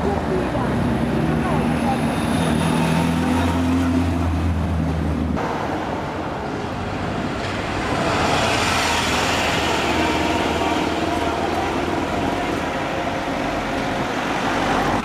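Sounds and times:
street traffic noise: 0.0s - 15.0s.

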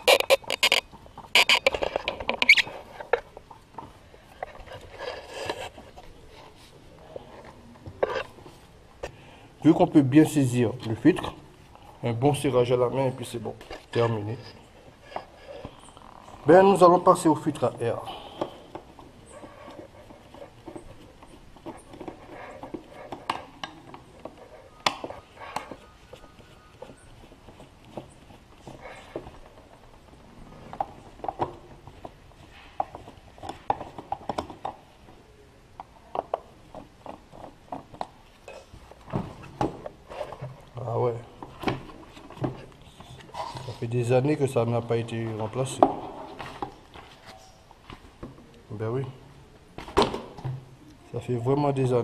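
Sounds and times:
scraping and clicking of oil filter: 0.0s - 6.2s
soft rustle: 0.0s - 49.9s.

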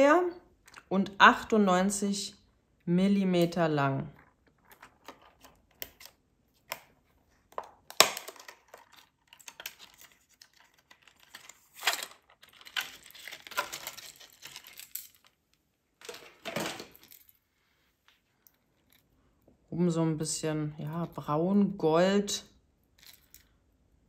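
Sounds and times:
packaging clicks: 7.9s - 15.4s
packaging crinkling: 8.0s - 15.4s.

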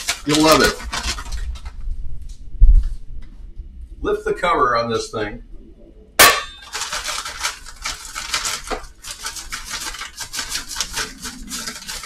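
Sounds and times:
frozen shrimp rattling into pan: 0.0s - 1.8s, 6.5s - 12.0s
plastic bag crinkling: 0.0s - 1.9s, 6.6s - 12.0s.

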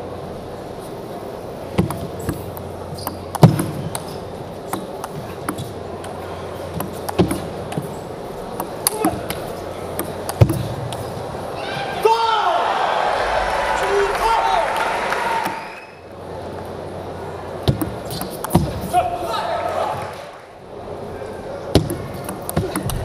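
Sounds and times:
low arena hum: 0.0s - 23.0s
table tennis ball clicking: 8.5s - 11.1s, 21.8s - 23.0s.

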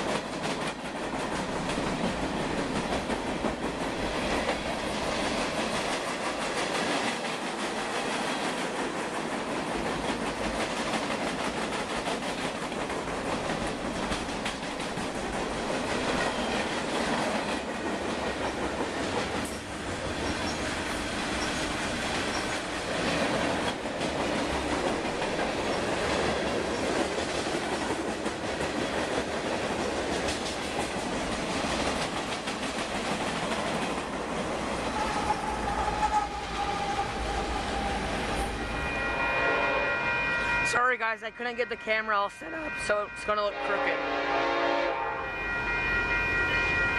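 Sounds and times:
freight train wheels clattering: 0.0s - 38.6s
train horn: 34.8s - 40.6s, 42.5s - 45.7s.

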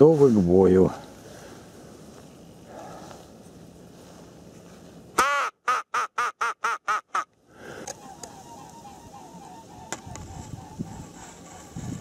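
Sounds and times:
duck quacking: 5.2s - 7.3s.

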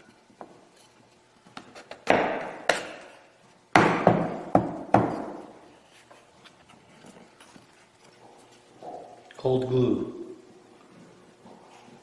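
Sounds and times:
sharp wooden knocks and cracks: 1.6s - 3.1s, 3.7s - 5.4s.

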